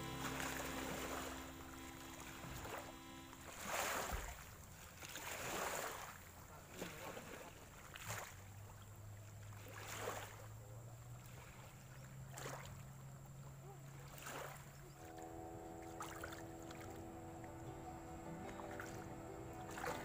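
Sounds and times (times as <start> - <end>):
river water at bank: 0.0 - 20.0
wind: 0.0 - 20.0.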